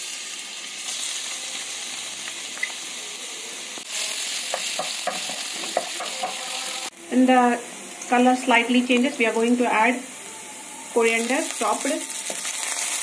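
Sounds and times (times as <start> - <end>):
garlic sizzling in oil: 0.0 - 13.0.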